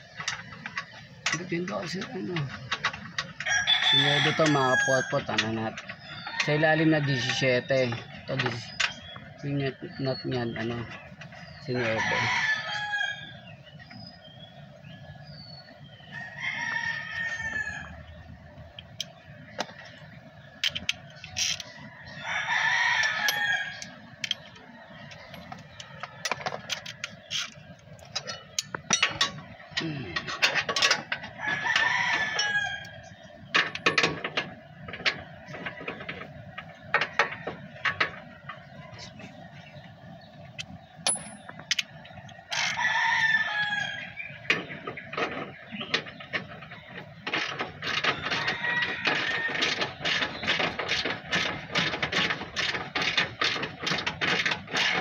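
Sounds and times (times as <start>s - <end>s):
rooster crowing: 3.4s - 5.2s, 11.8s - 13.3s, 16.2s - 18.0s, 22.0s - 23.9s, 31.4s - 33.0s, 42.5s - 44.2s, 48.2s - 49.9s
metallic clinks of wrenches: 28.2s - 32.6s, 41.0s - 42.8s.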